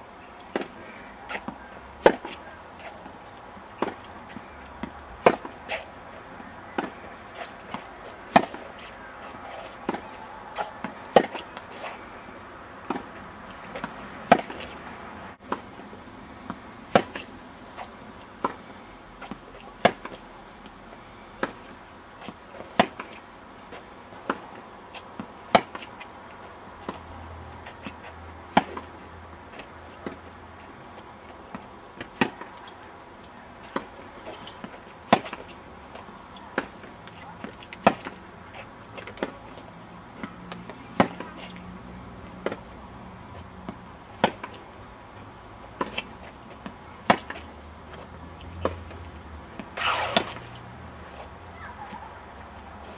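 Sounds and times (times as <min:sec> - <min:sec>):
tennis balls struck with rackets: 0:00.5 - 0:05.9, 0:06.7 - 0:12.0, 0:12.8 - 0:14.8, 0:16.4 - 0:18.6, 0:19.2 - 0:20.2, 0:21.4 - 0:23.2, 0:25.2 - 0:26.0, 0:26.8 - 0:30.2, 0:31.4 - 0:32.8, 0:33.6 - 0:35.5, 0:36.5 - 0:38.2, 0:40.2 - 0:41.5, 0:42.3 - 0:42.7, 0:43.6 - 0:44.6, 0:45.8 - 0:49.0, 0:49.6 - 0:50.6.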